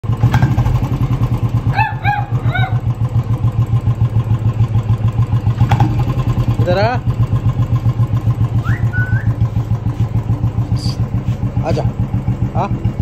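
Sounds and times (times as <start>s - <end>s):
motorcycle engine idling: 0.0s - 13.0s
dog whining: 1.7s - 2.9s.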